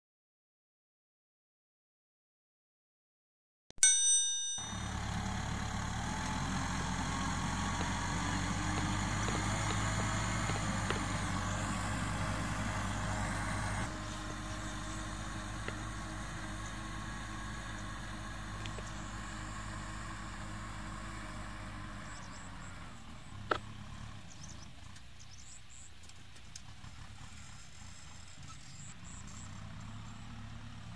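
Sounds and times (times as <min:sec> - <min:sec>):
short chime: 0:03.8 - 0:04.9
tractor diesel engine under load: 0:04.6 - 0:30.9.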